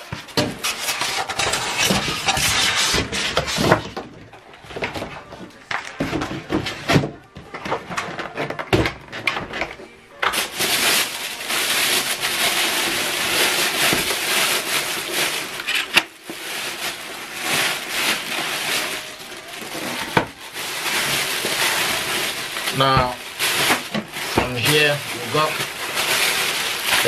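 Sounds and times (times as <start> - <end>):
plastic bag crinkling: 10.3 - 27.0.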